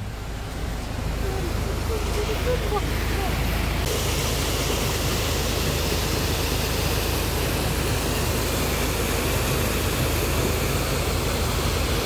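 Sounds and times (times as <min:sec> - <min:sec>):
car cabin road and engine noise: 0:00.0 - 0:12.0.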